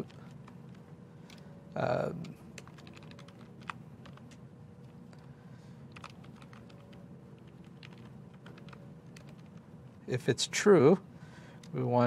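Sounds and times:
computer keyboard typing: 2.2 - 5.3, 5.9 - 9.6.

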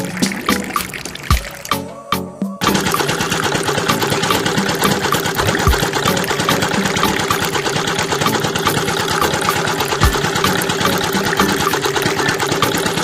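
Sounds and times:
small engine ticking: 2.6 - 13.0.

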